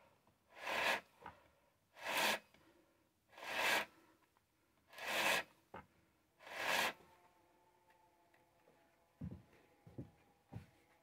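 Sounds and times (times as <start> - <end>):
chainsaw short strokes: 0.6 - 1.0, 2.0 - 2.4, 3.4 - 3.9, 4.9 - 5.5, 6.4 - 7.0.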